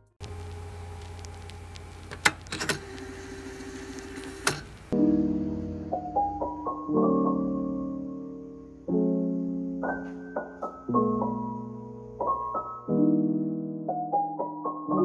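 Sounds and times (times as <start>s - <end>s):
soft piano music: 4.9s - 15.0s.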